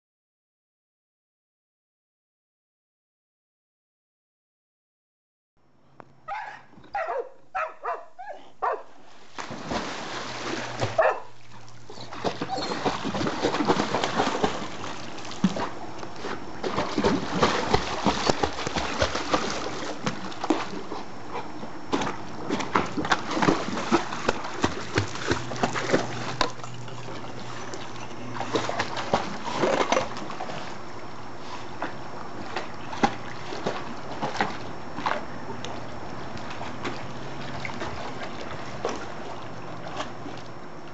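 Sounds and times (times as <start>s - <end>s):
dog barking: 6.3s - 8.9s, 11.0s - 11.3s
dog splashing in pool: 7.0s - 40.6s.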